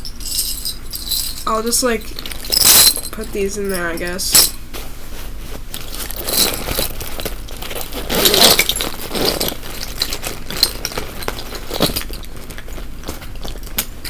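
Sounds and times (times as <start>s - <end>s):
keychains jangling: 0.0s - 4.6s, 5.8s - 12.6s
backpack rustling: 4.6s - 13.8s.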